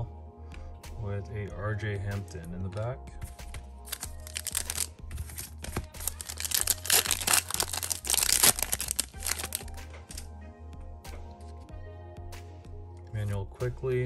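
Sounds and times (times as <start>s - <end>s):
wrapper tearing and crinkling: 3.8s - 10.2s.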